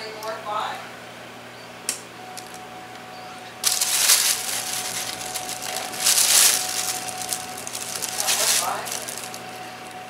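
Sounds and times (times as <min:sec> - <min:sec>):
plastic bag crinkling: 0:03.6 - 0:09.9.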